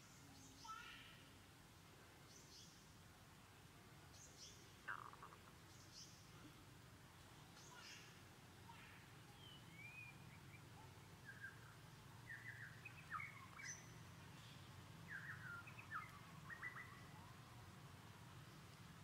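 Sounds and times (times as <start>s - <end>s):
low steady hum: 0.0s - 19.0s
bird chirps and twittering: 9.3s - 17.4s.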